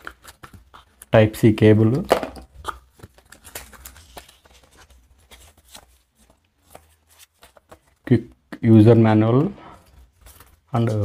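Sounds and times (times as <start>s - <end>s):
paper leaflets rustling: 2.9s - 8.1s, 9.7s - 11.0s.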